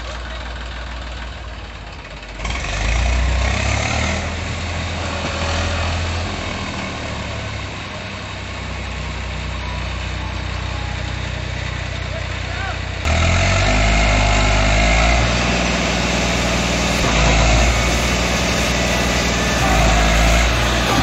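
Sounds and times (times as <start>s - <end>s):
tractor diesel engine revving: 0.0s - 21.0s.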